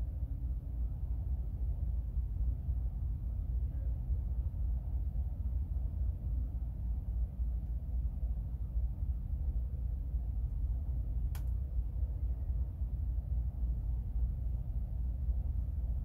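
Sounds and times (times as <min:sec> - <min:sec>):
low rumble: 0:00.0 - 0:16.0
sharp click: 0:11.3 - 0:11.6.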